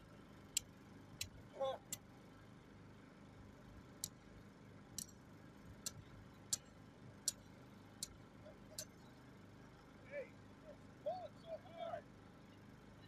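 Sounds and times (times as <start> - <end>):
sharp high clicks: 0.5 - 2.1, 4.0 - 4.2, 4.9 - 5.2, 5.8 - 9.0.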